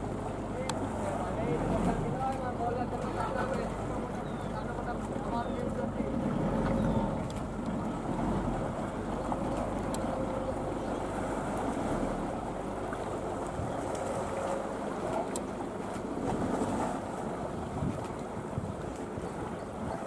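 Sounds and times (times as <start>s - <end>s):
wind buffeting microphone: 0.0s - 20.0s
faint clicks: 9.5s - 10.1s.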